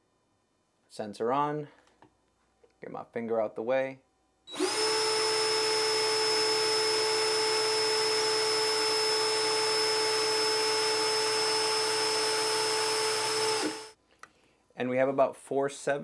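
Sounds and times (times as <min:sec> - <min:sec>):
cordless drill whining: 0:04.5 - 0:14.0.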